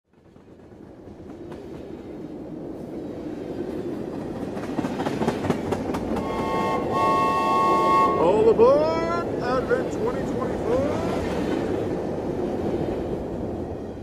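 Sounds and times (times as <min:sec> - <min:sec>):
toy locomotive whistle: 0:06.2 - 0:08.6.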